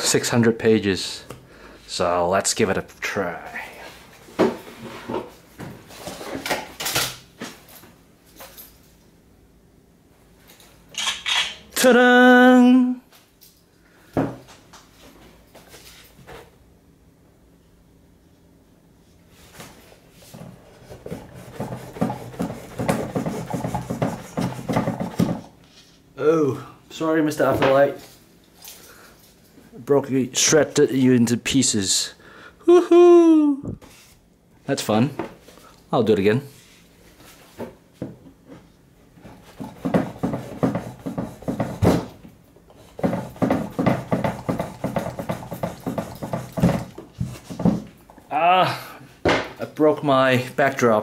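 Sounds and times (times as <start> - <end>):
cleaver rasping through paper: 20.8 - 25.4, 39.4 - 42.0, 42.9 - 46.9.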